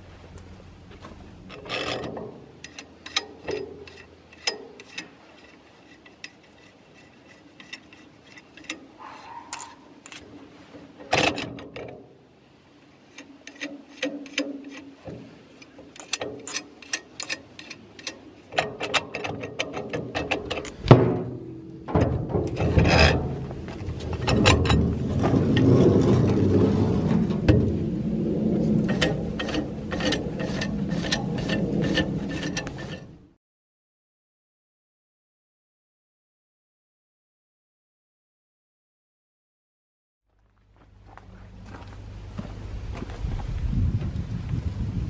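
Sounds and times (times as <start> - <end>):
metal clank: 1.0 - 6.6, 7.3 - 12.1, 13.1 - 33.2
metallic clicks and clinks: 9.5 - 10.2.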